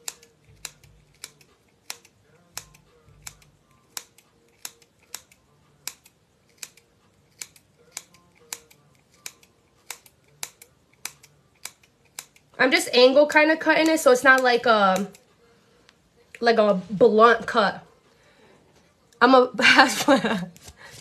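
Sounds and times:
hair scissors snipping: 0:00.0 - 0:12.5, 0:13.1 - 0:15.3.

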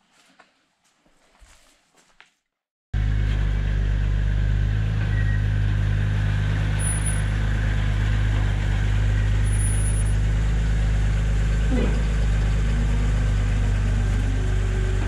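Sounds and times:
off-road machine engine running: 0:03.0 - 0:15.0.

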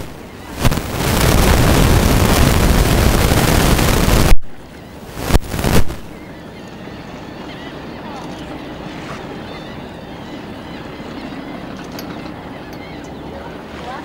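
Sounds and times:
wind buffeting microphone: 0:00.0 - 0:06.2.

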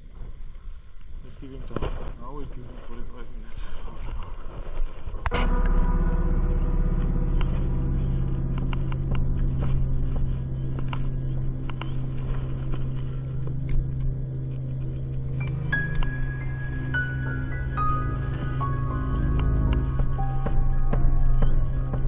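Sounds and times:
vehicle engine running: 0:05.4 - 0:20.0.

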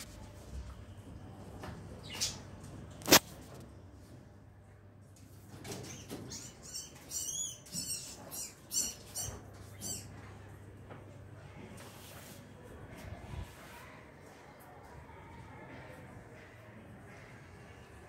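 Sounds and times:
small animals squeaking: 0:05.8 - 0:10.1.

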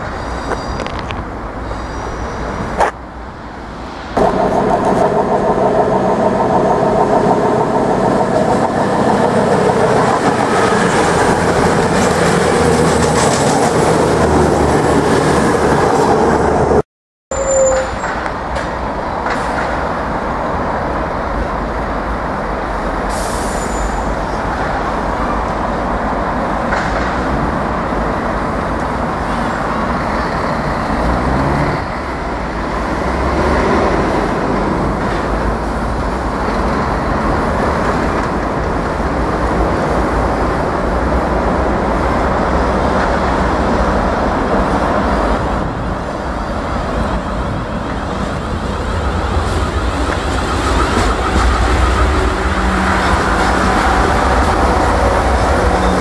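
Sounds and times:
electric train rumbling: 0:00.0 - 0:56.0
diesel train engine running: 0:01.3 - 0:16.8, 0:21.4 - 0:56.0
rising whine: 0:03.7 - 0:11.9
train wheels clicking on rails: 0:04.1 - 0:16.2, 0:17.8 - 0:20.9, 0:22.6 - 0:56.0.

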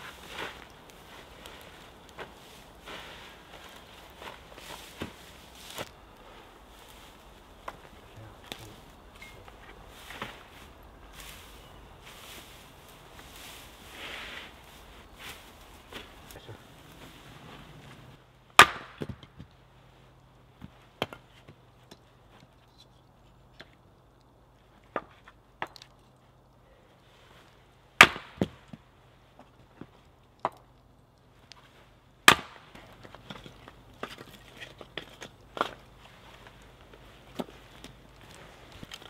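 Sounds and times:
axe chopping wood: 0:18.5 - 0:19.5, 0:28.0 - 0:28.8, 0:32.2 - 0:33.4
split wood pieces clattering: 0:32.3 - 0:39.0.

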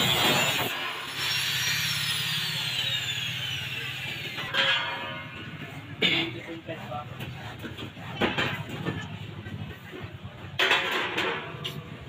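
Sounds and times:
grinder disc whine winding down: 0:00.0 - 0:04.5
angle grinder cutting metal: 0:00.0 - 0:05.6.

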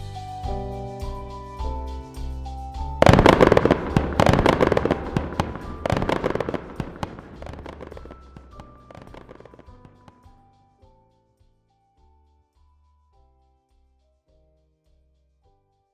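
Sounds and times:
background music: 0:00.0 - 0:15.9
fireworks bangs and crackles: 0:03.0 - 0:10.2.

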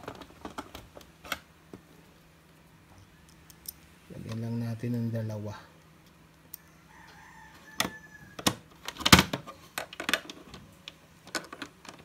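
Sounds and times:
rooster crowing faintly: 0:06.5 - 0:08.7.

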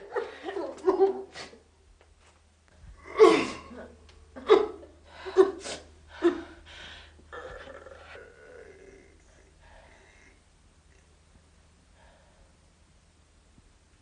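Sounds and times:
woman sobbing: 0:00.0 - 0:01.6, 0:03.0 - 0:06.6.

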